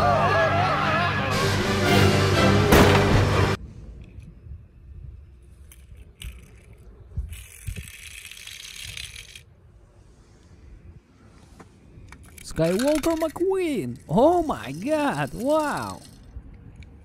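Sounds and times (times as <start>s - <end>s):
toy cars clicking and clinking: 5.3s - 9.5s, 12.0s - 17.0s.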